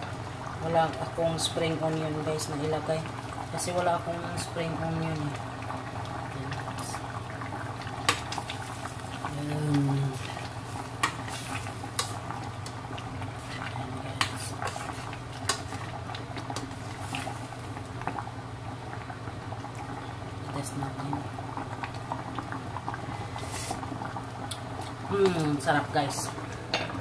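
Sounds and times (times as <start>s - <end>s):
stew bubbling: 0.0s - 27.0s.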